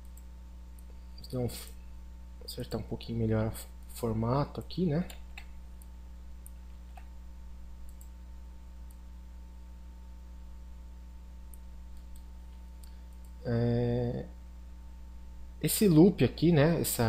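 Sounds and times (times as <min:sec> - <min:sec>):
electrical hum: 0:00.0 - 0:17.0
computer mouse clicks: 0:05.1 - 0:07.1, 0:07.8 - 0:08.1.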